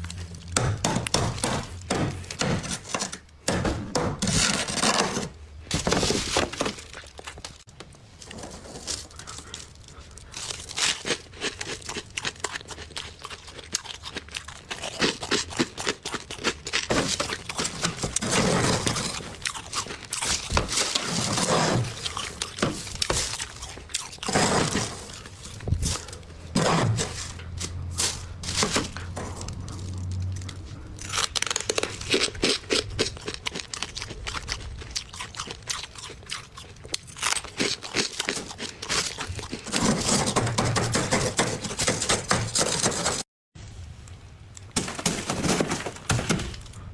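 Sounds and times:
metal scraper scraping frost: 0:04.2 - 0:06.4, 0:16.9 - 0:19.4, 0:20.2 - 0:23.3, 0:24.3 - 0:29.5, 0:39.6 - 0:43.2.

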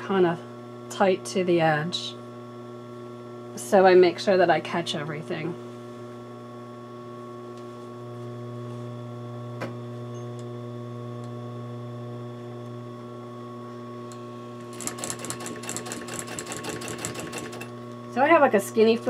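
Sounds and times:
sewing machine motor humming: 0:14.1 - 0:17.9
sewing machine stitching clatter: 0:14.7 - 0:17.7.

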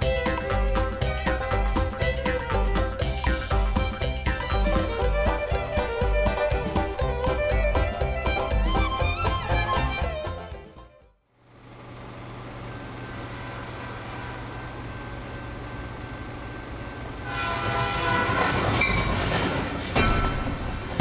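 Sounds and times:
low rumble of running train: 0:11.5 - 0:21.0
multi-tone train horn: 0:13.3 - 0:14.8, 0:17.2 - 0:19.8.

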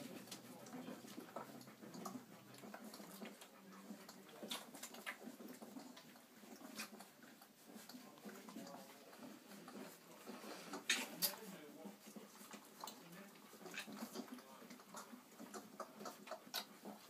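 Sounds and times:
puppies suckling clicks: 0:00.0 - 0:17.0
puppies squeaking: 0:00.9 - 0:11.5.

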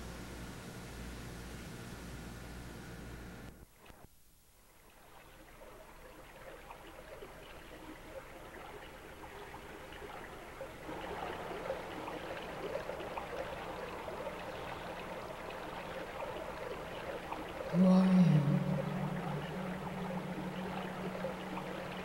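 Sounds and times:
water trickling and splashing: 0:04.7 - 0:22.0.

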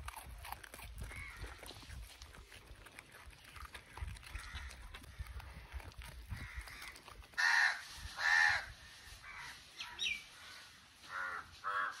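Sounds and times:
crow cawing: 0:06.4 - 0:12.0.

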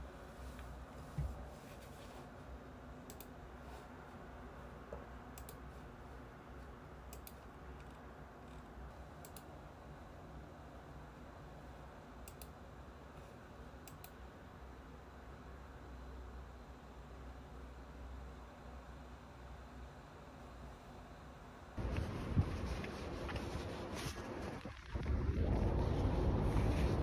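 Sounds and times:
low room hum: 0:00.0 - 0:27.0
computer mouse clicks: 0:03.1 - 0:03.4, 0:05.3 - 0:05.7, 0:07.1 - 0:08.6, 0:09.2 - 0:09.5, 0:12.2 - 0:12.6, 0:13.8 - 0:14.2.

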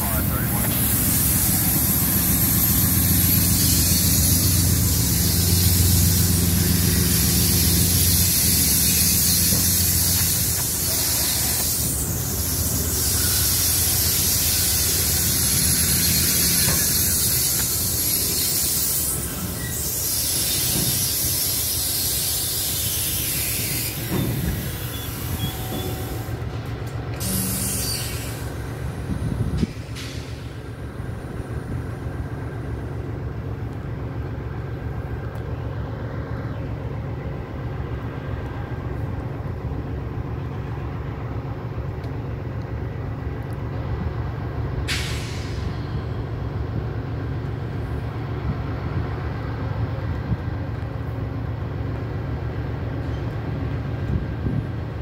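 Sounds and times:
loud steady hiss: 0:00.0 - 0:26.5, 0:27.2 - 0:32.8
locomotive engine rumble: 0:00.0 - 0:55.0.

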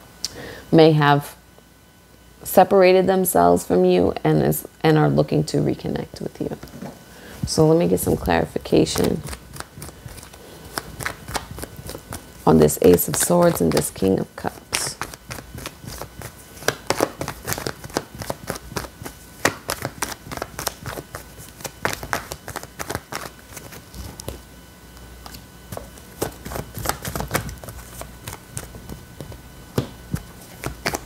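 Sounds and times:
cards shuffling: 0:08.1 - 0:24.4, 0:25.7 - 0:31.0.

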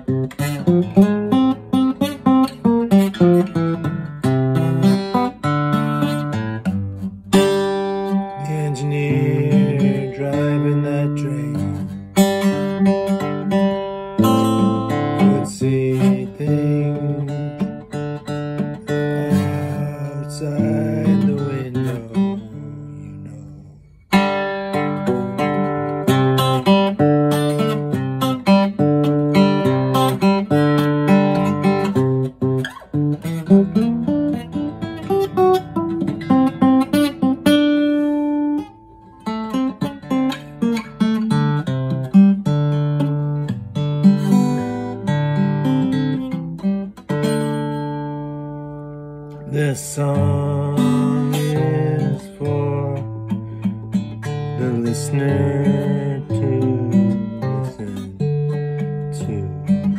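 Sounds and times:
acoustic guitar strumming: 0:00.0 - 0:59.9.

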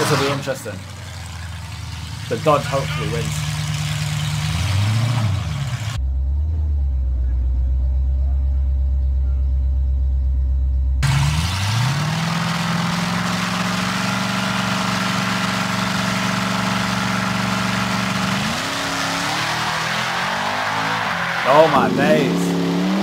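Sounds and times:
car running hard at speed: 0:00.0 - 0:06.1, 0:11.0 - 0:23.0
low engine rumble: 0:00.0 - 0:18.8.

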